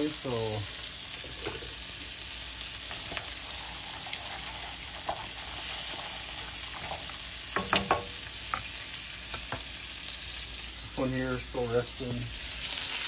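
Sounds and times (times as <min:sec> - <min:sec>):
meat sizzling in a pan: 0:00.0 - 0:13.0
sharp clicks and knocks: 0:07.6 - 0:08.1.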